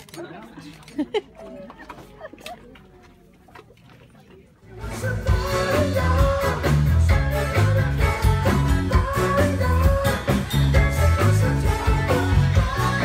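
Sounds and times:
band music: 4.8s - 13.0s
bass line: 4.8s - 13.0s.

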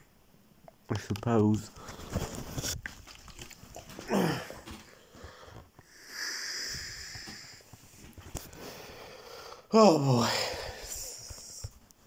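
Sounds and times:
man groaning: 4.0s - 4.6s, 9.7s - 10.6s
long breathy hiss: 4.9s - 11.7s.

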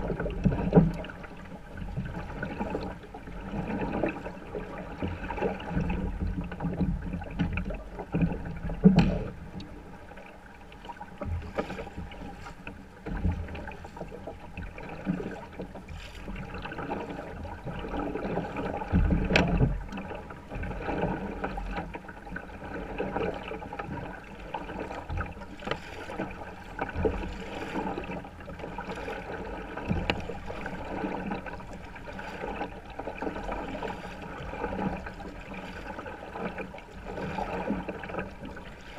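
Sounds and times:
paddle splashing: 0.0s - 38.9s
water sloshing against kayak hull: 0.0s - 38.9s
knocks on kayak hull: 8.2s - 9.4s.

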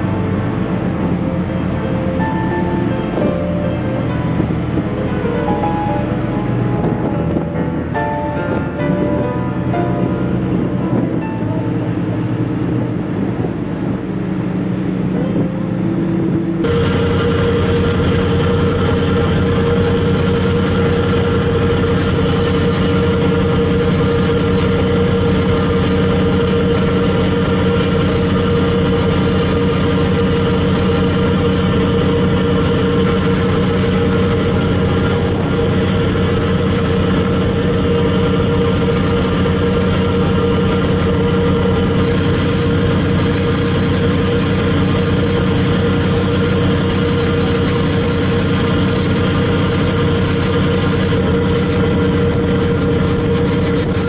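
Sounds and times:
churning wake rushing: 0.0s - 54.0s
ferry engine drone: 0.0s - 54.0s.

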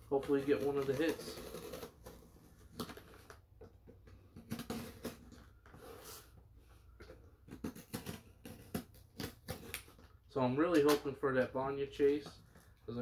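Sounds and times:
box cutter slitting tape: 0.4s - 3.3s, 4.3s - 6.3s, 7.5s - 10.2s.

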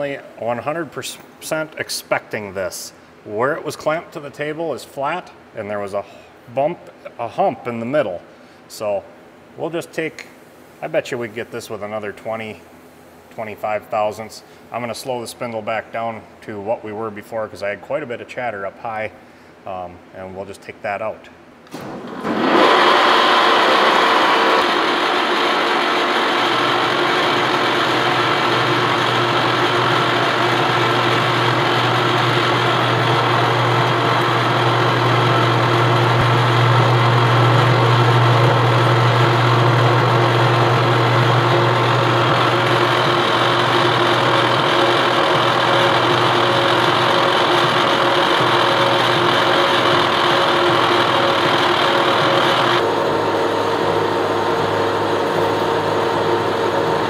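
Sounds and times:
milling machine cutting steel: 22.2s - 57.0s.

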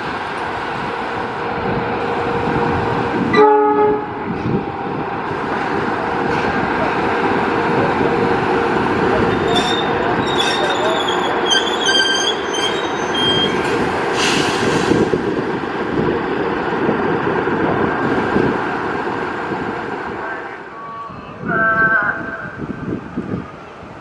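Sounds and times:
locomotive engine and wheel rumble: 0.0s - 24.0s
high wheel squeals: 9.3s - 14.6s.

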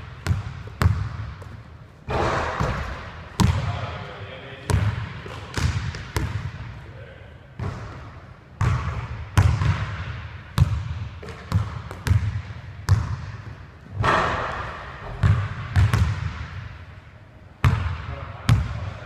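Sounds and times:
basketball bouncing on gym floor: 0.0s - 3.9s, 4.6s - 6.7s, 7.6s - 16.8s, 17.6s - 19.0s.

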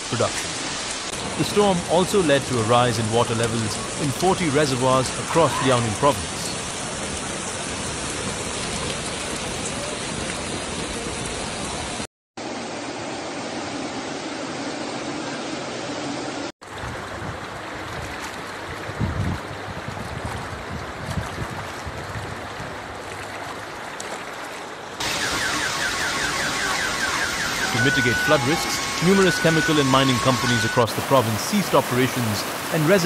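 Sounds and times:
heavy rain: 0.0s - 13.4s, 25.0s - 33.0s
rushing floodwater: 0.0s - 33.0s.

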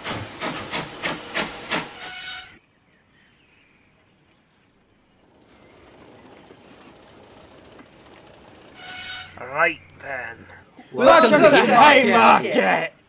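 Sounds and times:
steam locomotive chuffing: 0.0s - 2.6s, 5.2s - 11.3s.

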